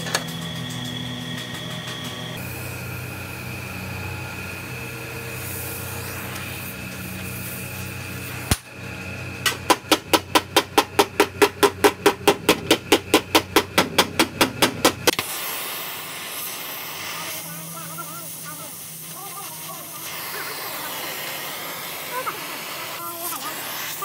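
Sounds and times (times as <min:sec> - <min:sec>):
gas torch hissing: 0:00.0 - 0:09.8, 0:15.0 - 0:24.0.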